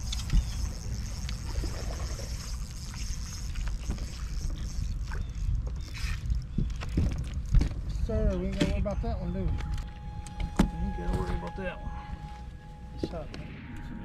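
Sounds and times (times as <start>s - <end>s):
fishing rod clicks and knocks: 0.0s - 2.0s
low rumble of water and wind: 0.0s - 14.0s.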